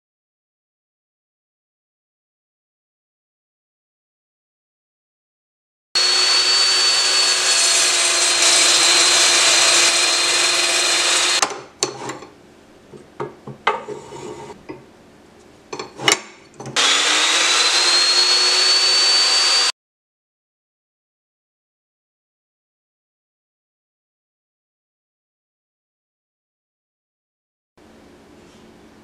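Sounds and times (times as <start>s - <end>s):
chop saw cutting metal: 6.0s - 11.5s, 16.0s - 19.7s.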